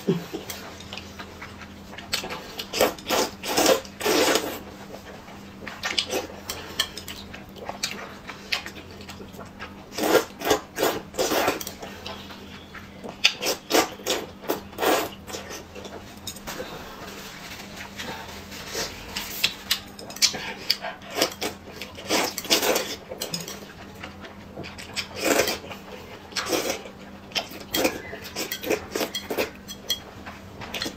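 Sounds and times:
slurping noodles: 2.7 - 4.6, 9.9 - 11.7, 13.4 - 15.6.

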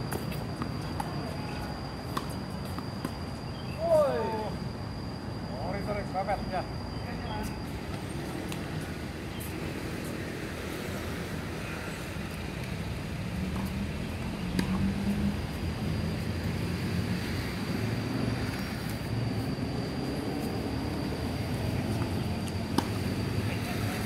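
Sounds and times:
thin high whine: 0.0 - 24.0
distant road traffic rumble: 5.1 - 24.0.

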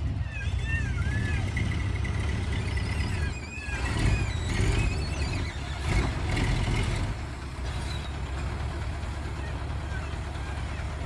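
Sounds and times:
diesel truck engine rumbling: 0.0 - 11.0
high squeaks: 0.2 - 6.4.

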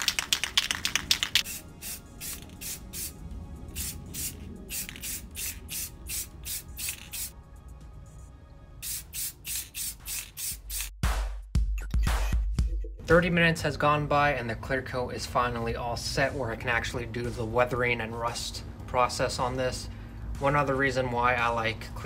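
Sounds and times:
aerosol can mixing ball rattling: 0.0 - 3.1, 3.8 - 7.3
aerosol spray hisses: 1.4 - 3.2, 3.8 - 7.4, 8.8 - 10.9.

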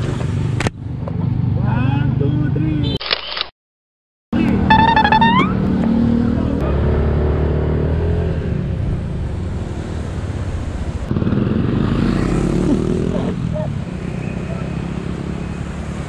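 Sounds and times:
high-pitched sound sliding upward: 4.6 - 5.7.

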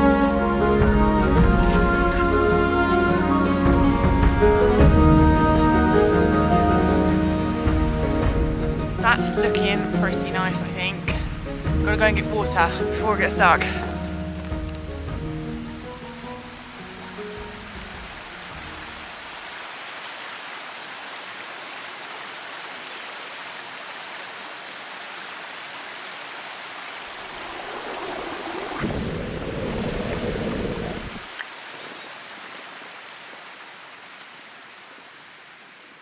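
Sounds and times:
low water rush: 0.0 - 36.0
mountain stream over stones: 9.1 - 36.0.

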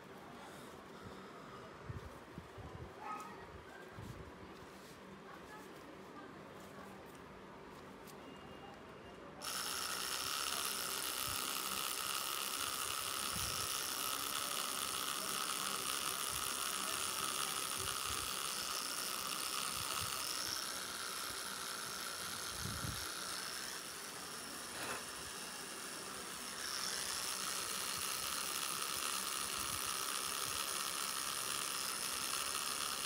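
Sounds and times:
tattoo machine whining: 9.4 - 33.0.

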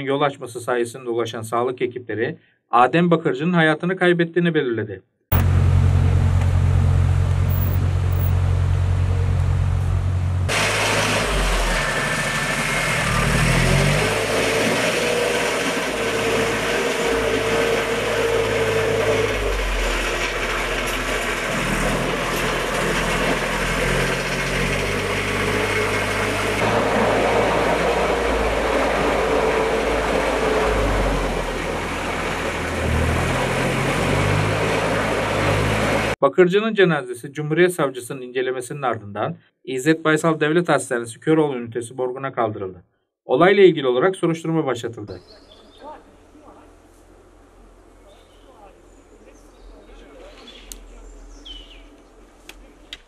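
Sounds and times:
off-road vehicle engines revving: 5.3 - 36.2.

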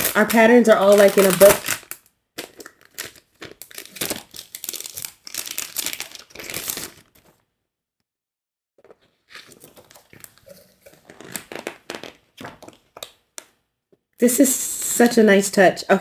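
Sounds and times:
plastic packaging crinkling: 0.0 - 7.4, 8.8 - 13.6.

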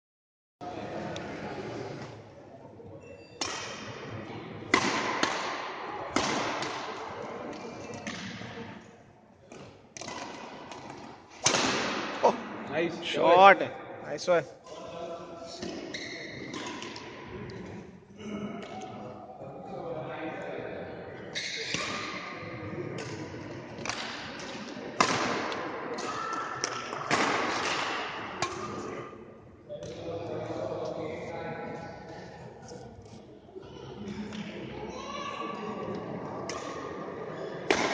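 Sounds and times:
rackets hitting shuttlecock: 3.4 - 4.0, 4.7 - 8.4, 9.5 - 12.2, 23.0 - 29.0, 36.5 - 36.8, 37.7 - 37.9.

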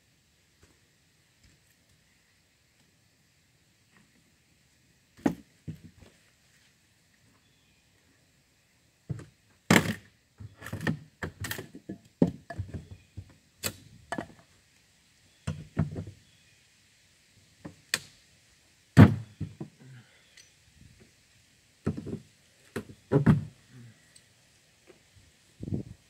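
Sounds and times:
knocks and thuds on wood: 5.2 - 6.1, 9.1 - 13.3, 19.0 - 19.7, 21.8 - 22.2, 22.8 - 23.5.

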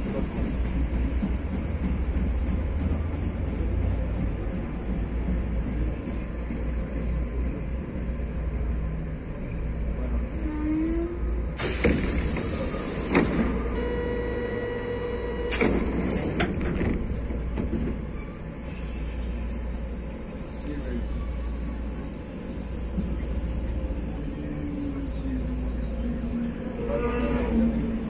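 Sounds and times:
rail car low hum: 0.0 - 28.0
sliding doors shutting: 11.6 - 18.1
buzzer tone: 13.8 - 15.6.

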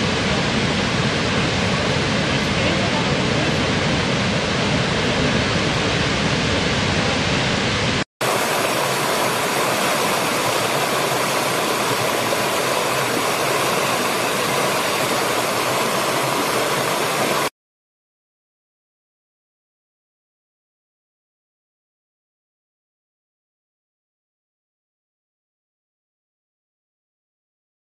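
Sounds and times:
stream splashing over stones: 8.2 - 17.5
waterfall pouring: 8.2 - 17.5.

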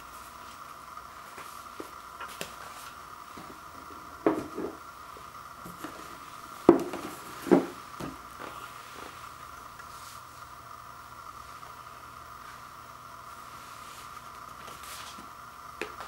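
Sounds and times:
faint steady hum: 0.0 - 16.0
box knocking on wooden floor: 6.7 - 8.2.

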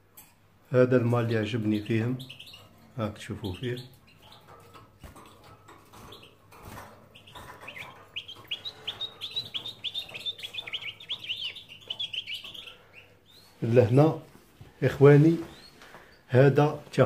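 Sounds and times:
goldfinch chirps and twitters: 1.0 - 14.0, 15.4 - 15.8.

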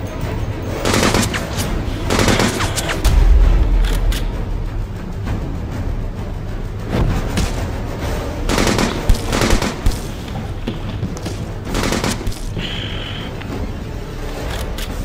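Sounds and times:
low rumbling film score: 0.0 - 15.0
sharp bangs: 0.8 - 5.0, 6.9 - 13.0.

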